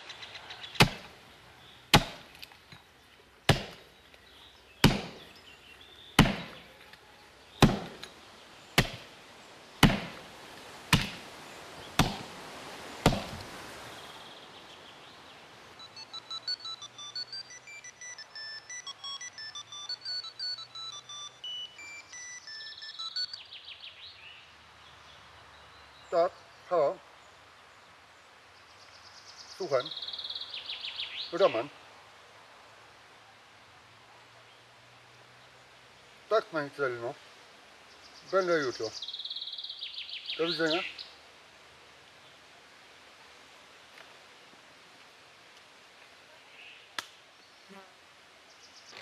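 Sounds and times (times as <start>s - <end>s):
axe chopping tree trunk: 0.8s - 1.2s, 1.9s - 2.6s, 3.4s - 3.9s, 4.8s - 5.3s, 6.2s - 6.8s, 7.6s - 8.2s, 8.8s - 9.2s, 9.8s - 10.3s, 10.9s - 11.3s, 11.9s - 12.4s, 13.0s - 13.6s.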